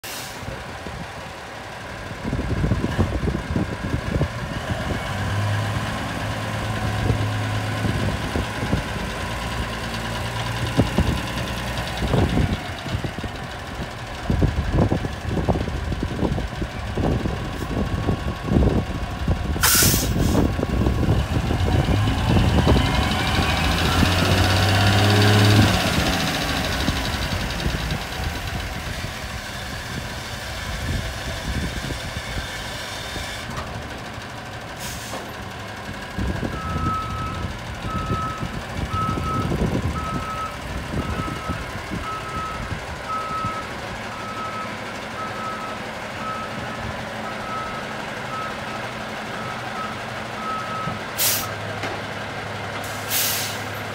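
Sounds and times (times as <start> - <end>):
diesel truck engine revving: 0.1 - 53.9
short hisses of air: 19.6 - 20.4, 51.2 - 51.5, 52.9 - 53.7
truck backup alarm beeping: 19.6 - 28.6, 36.2 - 51.6.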